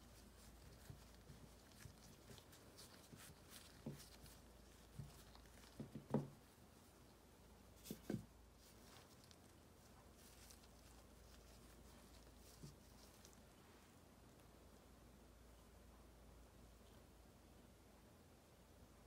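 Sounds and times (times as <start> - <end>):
light rustling of powder: 0.0 - 14.1.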